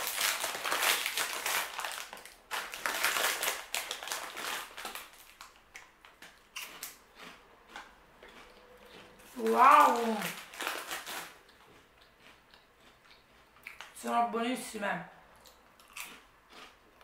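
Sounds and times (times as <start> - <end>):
plastic snack bag rustling: 0.0 - 5.6, 8.9 - 11.5
crisp snack crunches: 0.0 - 14.0, 15.4 - 17.0.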